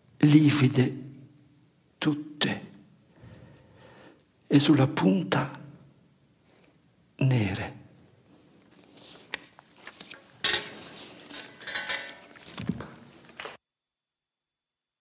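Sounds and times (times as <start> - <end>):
rustling handling noise: 8.0 - 13.6
clinks and knocks: 10.4 - 12.9.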